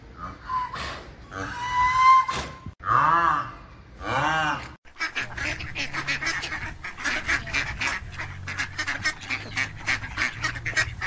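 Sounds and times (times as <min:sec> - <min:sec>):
ducks quacking: 0:04.0 - 0:11.0.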